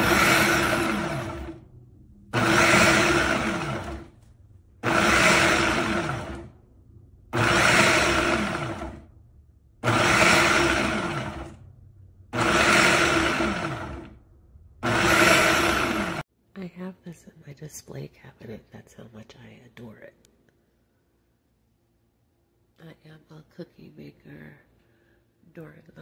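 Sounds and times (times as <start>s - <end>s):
blender pulsing: 0.0s - 1.6s, 2.3s - 4.2s, 4.8s - 6.6s, 7.3s - 9.1s, 9.8s - 11.6s, 12.4s - 14.2s, 14.8s - 16.3s.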